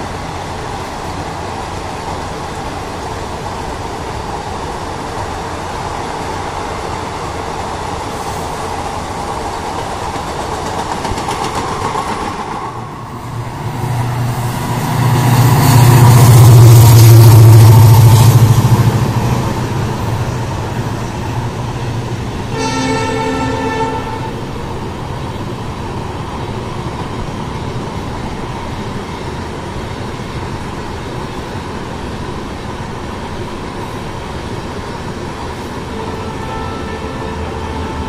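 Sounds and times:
train wheels rumbling on rails: 0:00.0 - 0:38.0
locomotive engine: 0:00.1 - 0:30.0
train horn: 0:22.5 - 0:24.6, 0:35.9 - 0:38.0.

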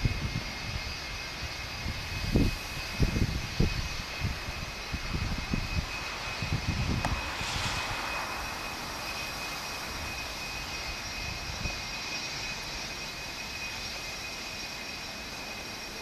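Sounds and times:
jet engines whining and rushing: 0:00.0 - 0:16.0
low rumbling: 0:04.9 - 0:11.8.

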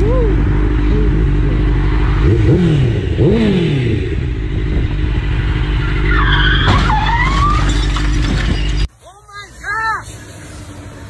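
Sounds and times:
motorcycle engine revving: 0:00.0 - 0:06.6
high wavering squeal: 0:05.6 - 0:08.9.

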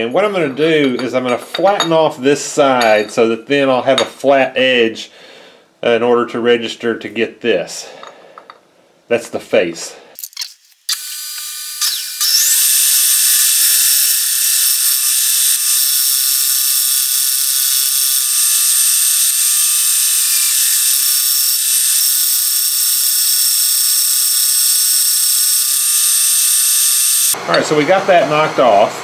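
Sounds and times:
milling machine high-pitched whine: 0:10.9 - 0:27.5.

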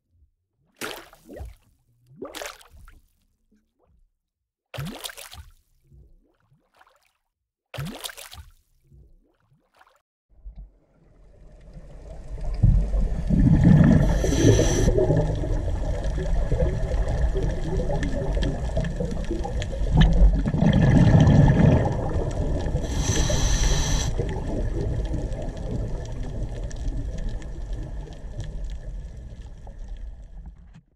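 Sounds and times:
bubbles rumbling and gurgling: 0:10.4 - 0:30.9
hissing breaths through regulator: 0:13.9 - 0:15.2, 0:22.8 - 0:24.3.

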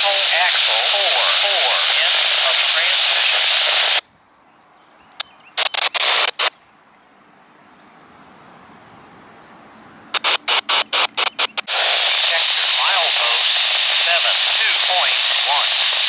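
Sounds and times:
radio scanner static: 0:00.0 - 0:04.0, 0:05.6 - 0:06.6, 0:10.1 - 0:16.0
choppy squelch bursts: 0:10.1 - 0:12.9.

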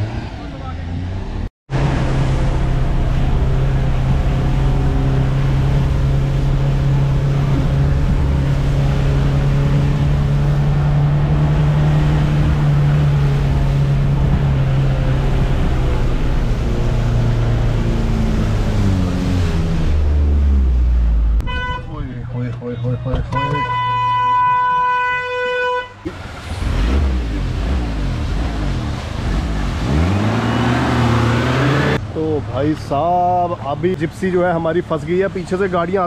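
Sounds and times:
water splashing around wheels: 0:01.7 - 0:21.7, 0:26.0 - 0:33.0.

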